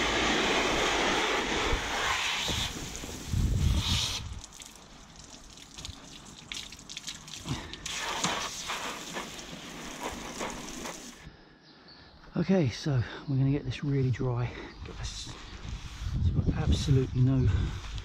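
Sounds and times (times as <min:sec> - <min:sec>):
hose nozzle spraying water: 0:00.0 - 0:11.3
water dripping: 0:04.0 - 0:11.2.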